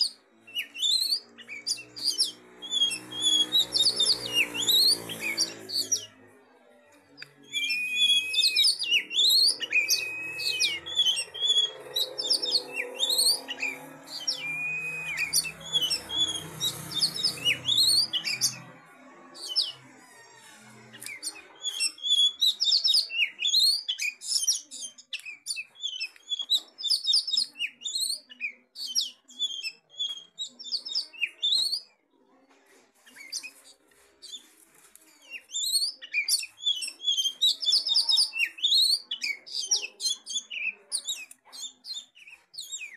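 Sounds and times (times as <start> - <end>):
bird singing whistles and trills: 0.0 - 6.1, 7.4 - 18.7, 21.0 - 31.9, 35.3 - 42.9.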